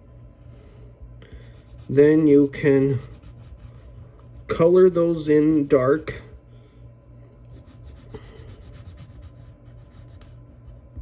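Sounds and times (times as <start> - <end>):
pencil shading on paper: 7.5 - 10.7.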